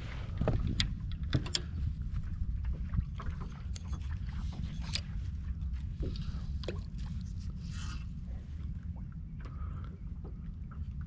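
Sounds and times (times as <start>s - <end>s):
boat engine rumble: 0.0s - 11.0s.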